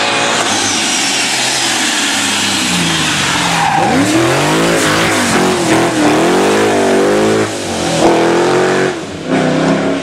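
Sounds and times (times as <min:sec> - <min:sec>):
rally car engine revving hard: 0:00.0 - 0:10.0.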